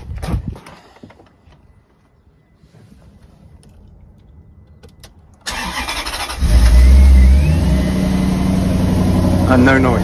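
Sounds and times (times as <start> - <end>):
car engine revving and idling: 6.3 - 10.0.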